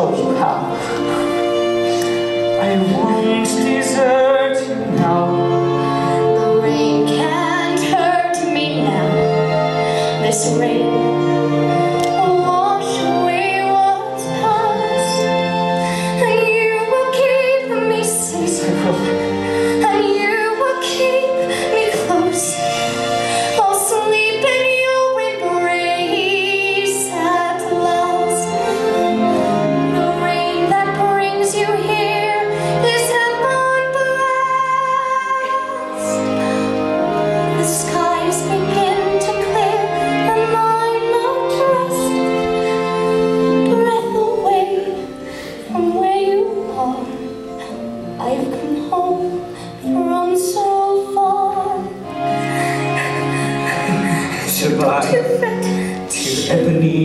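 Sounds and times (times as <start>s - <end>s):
instrumental accompaniment: 0.0s - 57.0s
woman singing with vibrato: 10.1s - 11.2s, 16.1s - 36.3s, 37.5s - 42.3s.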